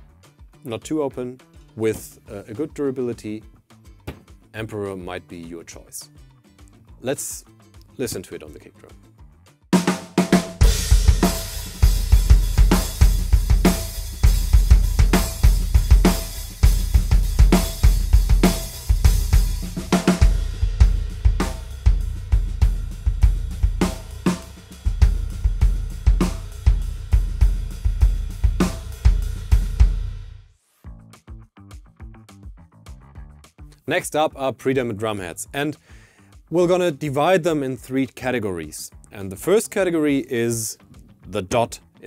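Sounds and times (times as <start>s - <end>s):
drum kit groove: 0.0s - 6.0s, 9.7s - 41.8s
kick drum: 4.0s - 4.4s.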